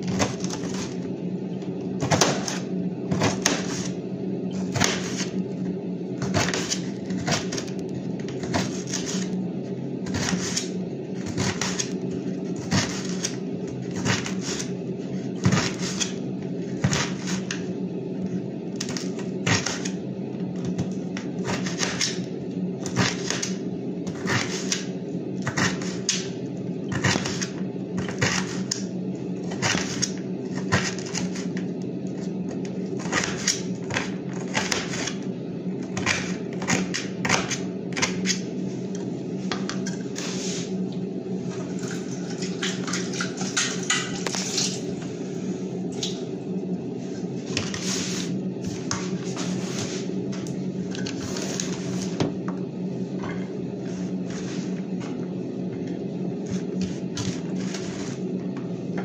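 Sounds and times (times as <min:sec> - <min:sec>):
steady low hum: 0:00.0 - 0:59.0
knife chopping vegetables: 0:02.0 - 0:04.0, 0:04.6 - 0:05.4, 0:06.2 - 0:07.7, 0:08.3 - 0:09.3, 0:10.0 - 0:12.0, 0:12.6 - 0:14.7, 0:20.7 - 0:22.2, 0:22.8 - 0:26.2, 0:26.9 - 0:28.8, 0:33.0 - 0:35.2, 0:35.9 - 0:38.4.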